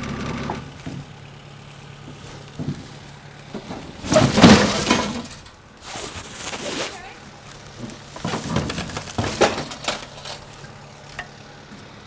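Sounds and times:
tools clattering and banging: 3.5s - 5.6s, 7.8s - 11.4s.

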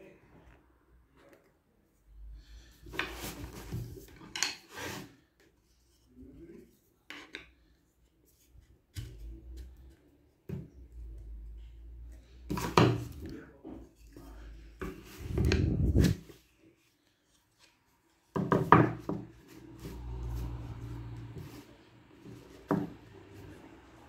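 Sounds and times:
wood scraping: 14.0s - 16.4s.

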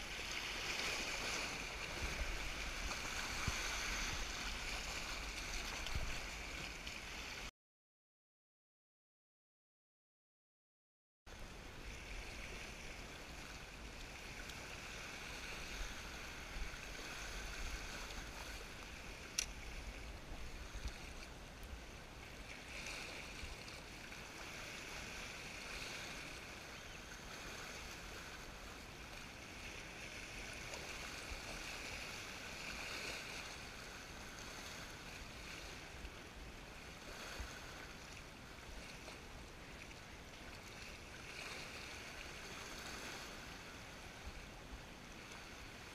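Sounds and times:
water lapping against rocks: 0.0s - 7.5s, 11.9s - 45.9s
wind rumbling on microphone: 0.0s - 7.5s, 11.3s - 38.0s.

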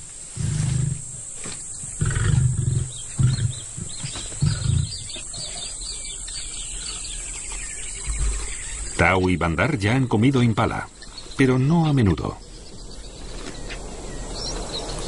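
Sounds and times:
lion grunting: 0.3s - 1.3s, 2.0s - 6.1s.

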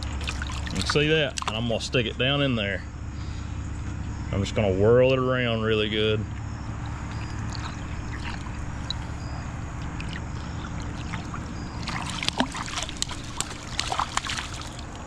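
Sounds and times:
pool water splashing: 0.0s - 1.9s, 6.4s - 15.0s
low background hum: 0.0s - 15.0s.

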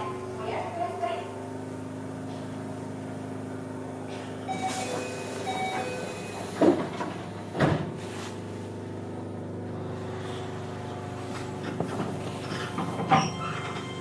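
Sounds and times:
train equipment humming: 0.0s - 14.0s
train doors thudding shut: 4.5s - 8.0s, 11.7s - 14.0s.

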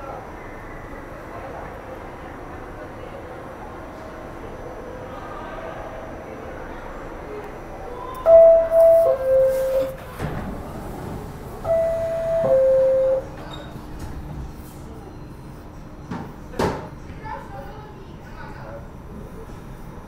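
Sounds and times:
low station rumble: 0.0s - 16.1s
two-tone door chime: 8.3s - 10.0s, 11.7s - 13.4s.

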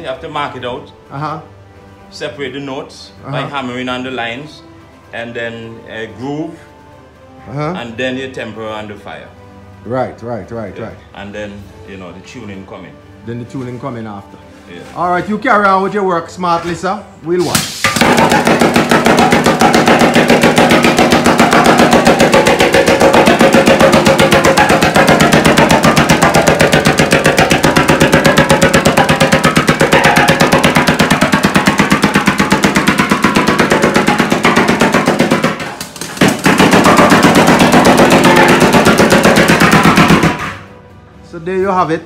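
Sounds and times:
air hammer pounding metal drum: 17.4s - 40.8s.

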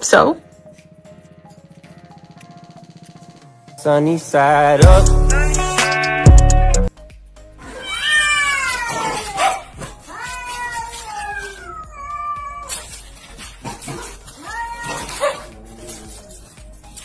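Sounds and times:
cats yowling: 7.6s - 16.6s.

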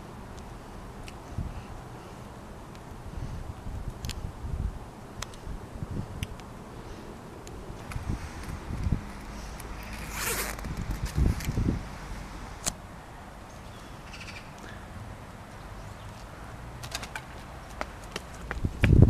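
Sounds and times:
faint outdoor background: 0.0s - 19.0s
jacket zipper pulled open: 9.7s - 11.2s
light footsteps: 16.1s - 19.0s.

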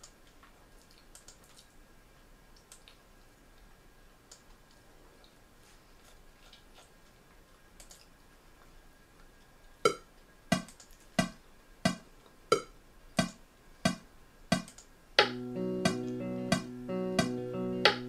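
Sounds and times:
faint clicking: 0.0s - 1.7s, 7.8s - 8.1s
metronome clicks: 14.5s - 18.0s
guitar music: 15.2s - 18.0s.

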